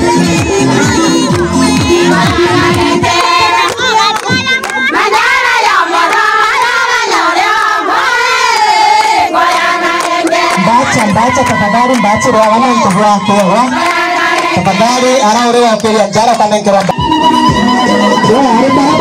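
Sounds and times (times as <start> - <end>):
backing music bass: 0.0 - 3.6, 15.3 - 19.0
crowd singing and calling out: 0.0 - 19.0.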